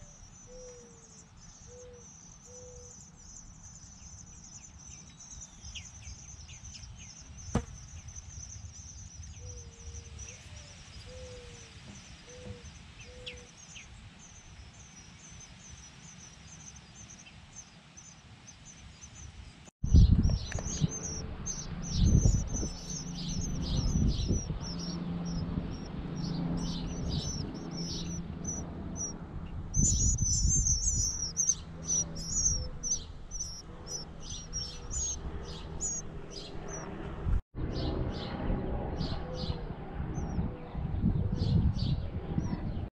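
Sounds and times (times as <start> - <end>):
nestling birds chirping: 0.0 - 37.2.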